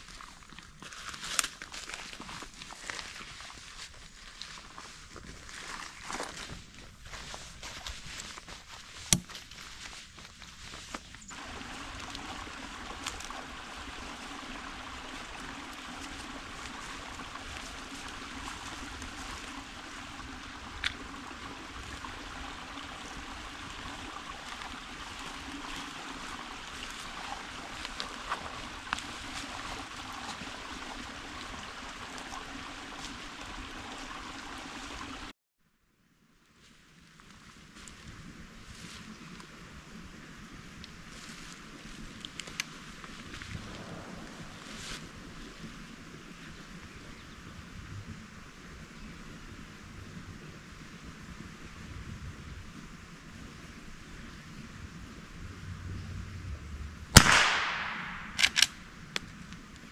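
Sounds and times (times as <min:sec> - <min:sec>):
creek trickling and gurgling: 0:00.0 - 0:35.3, 0:36.9 - 0:59.9
sharp clicks: 0:57.2 - 0:59.3.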